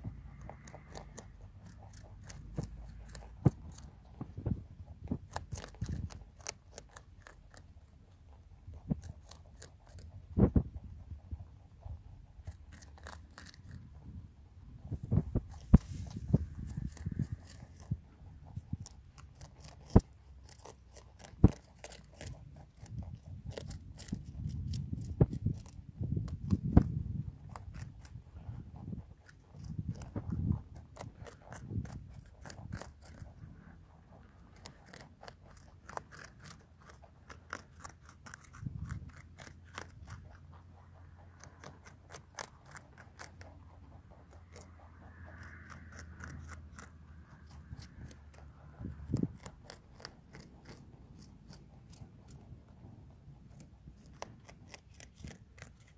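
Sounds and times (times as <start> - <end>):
soft low bumps: 0.0 - 6.2, 10.2 - 12.7, 13.4 - 19.2
rabbits chewing cabbage: 0.0 - 55.9.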